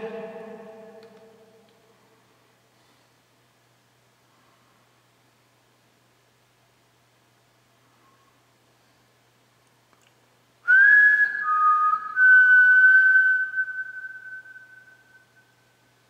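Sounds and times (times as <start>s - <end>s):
person whistling high note: 10.7s - 15.6s.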